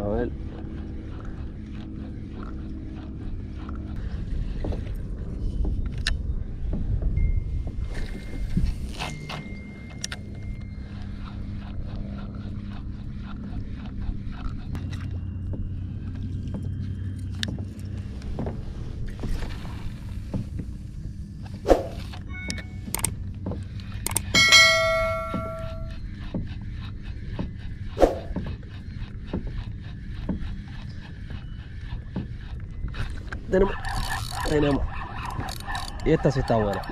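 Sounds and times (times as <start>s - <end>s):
wind and water rumble: 0.0s - 36.9s
short ringing tone: 22.3s - 22.9s, 24.3s - 26.0s
spinning reel ticking: 33.5s - 36.9s.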